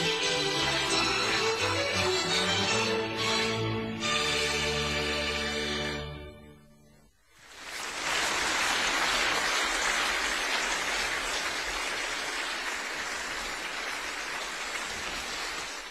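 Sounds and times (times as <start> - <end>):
audience applause: 0.0 - 2.5, 7.4 - 15.9.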